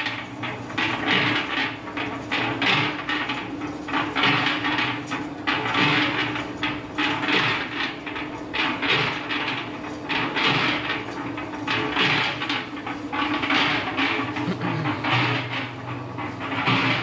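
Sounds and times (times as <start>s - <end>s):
cement mixer motor hum: 0.0s - 17.0s
mixer drum rattle: 0.0s - 17.0s.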